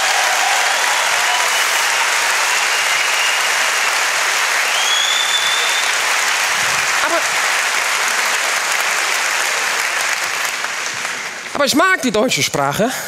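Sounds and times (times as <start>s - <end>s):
audience applauding: 0.0s - 12.2s
high whistle: 1.2s - 4.0s, 4.6s - 6.0s.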